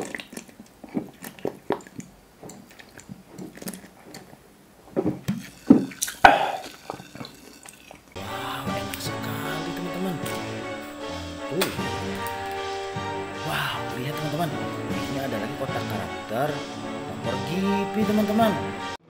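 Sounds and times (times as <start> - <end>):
person swallowing and gulping: 0.0 - 8.2
music: 8.2 - 19.0.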